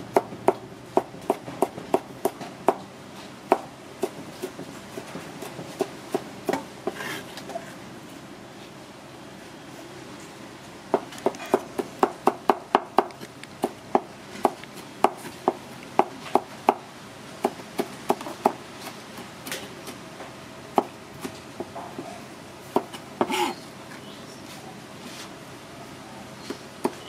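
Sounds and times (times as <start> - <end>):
knife scraping stroke: 6.9 - 7.4.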